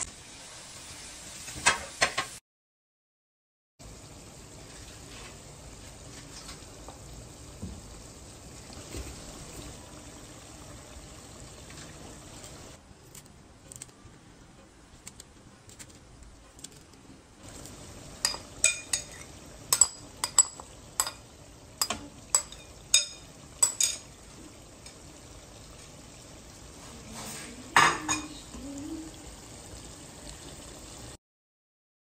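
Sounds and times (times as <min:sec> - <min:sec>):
gravy sizzling in a frying pan: 0:00.0 - 0:02.4, 0:03.8 - 0:12.8, 0:17.4 - 0:31.2
utensil clinking against pan: 0:18.2 - 0:21.2.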